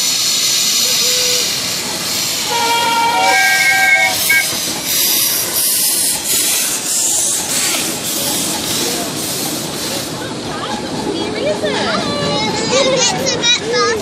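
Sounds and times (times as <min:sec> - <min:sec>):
steam hissing: 0:00.0 - 0:11.1.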